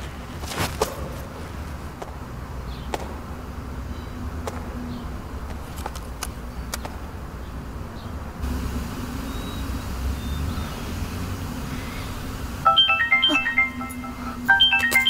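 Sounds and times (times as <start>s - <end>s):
steady low hum: 6.3s - 14.8s
mobile phone ringtone: 12.7s - 15.0s.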